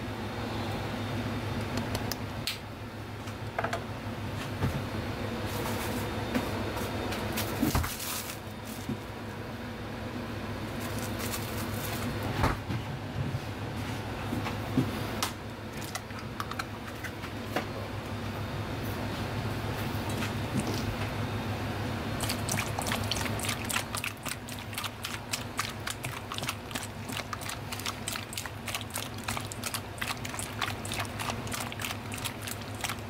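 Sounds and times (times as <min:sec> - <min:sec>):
kitchen machinery hum: 0:00.0 - 0:33.0
utensils and bottles clicking on bowl: 0:22.2 - 0:33.0.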